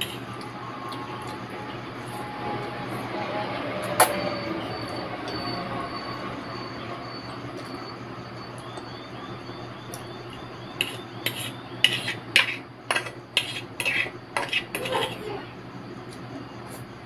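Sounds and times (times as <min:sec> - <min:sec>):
fork scraping against a plate: 0:00.0 - 0:01.4, 0:10.8 - 0:15.4.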